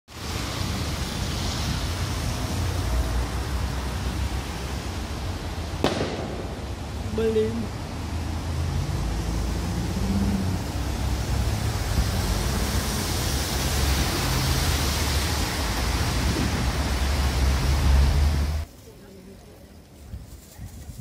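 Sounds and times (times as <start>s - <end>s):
wind buffeting microphone: 15.2s - 18.4s, 19.9s - 21.0s.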